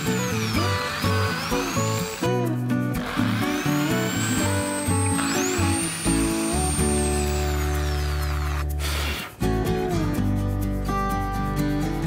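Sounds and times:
electric drill whining into wood: 0:00.0 - 0:09.3
background music: 0:00.0 - 0:12.0.

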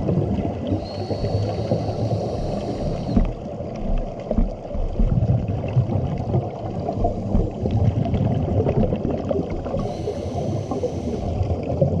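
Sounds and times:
muffled water churning underwater: 0:00.0 - 0:12.0
faint high whine: 0:00.8 - 0:03.3, 0:09.8 - 0:11.4.

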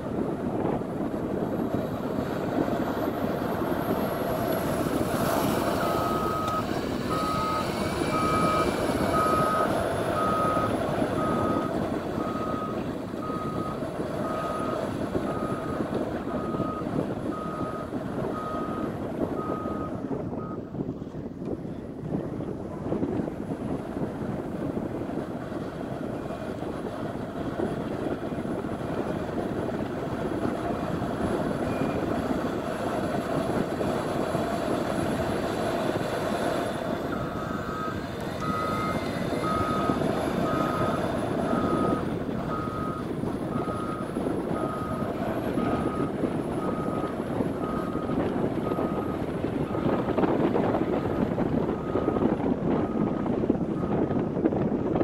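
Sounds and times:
diesel engine running under load: 0:00.0 - 0:55.0
backup alarm beeping: 0:05.8 - 0:15.8, 0:37.2 - 0:50.0.

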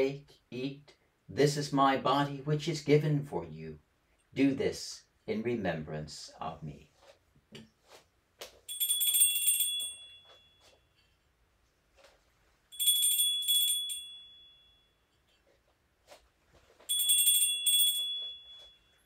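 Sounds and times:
altar bells ringing: 0:08.7 - 0:11.0, 0:12.7 - 0:15.1, 0:16.9 - 0:19.0.

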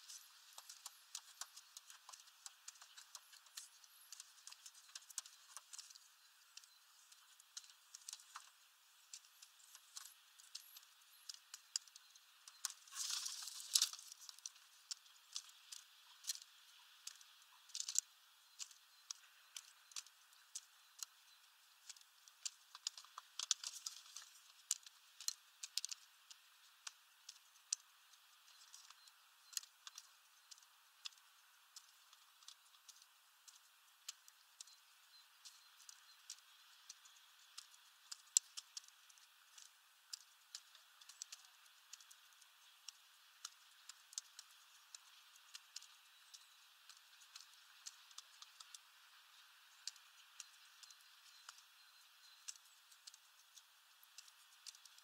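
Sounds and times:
pigeon pecking seeds: 0:00.0 - 0:55.0
seed rustling: 0:12.6 - 0:14.6.

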